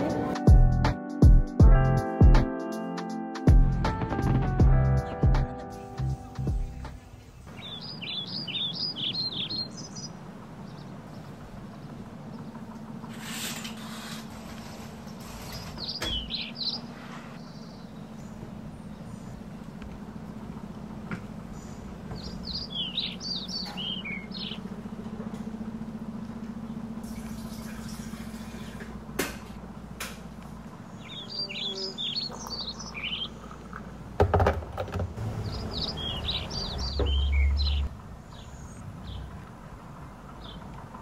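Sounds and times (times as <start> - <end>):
knocks and low thumps: 3.5 - 5.5, 36.3 - 37.9
songbird singing: 5.0 - 13.3, 15.0 - 28.8, 29.7 - 34.2, 35.2 - 41.0
steady low hum: 16.2 - 34.2.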